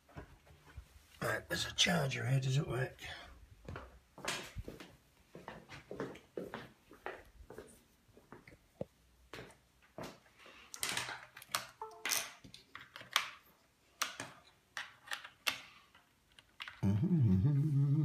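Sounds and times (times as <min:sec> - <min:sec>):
man speaking: 0:01.2 - 0:03.3.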